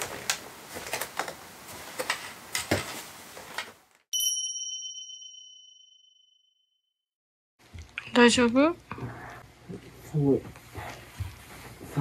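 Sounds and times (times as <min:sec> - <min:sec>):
bright ding chime: 0:04.2 - 0:06.5.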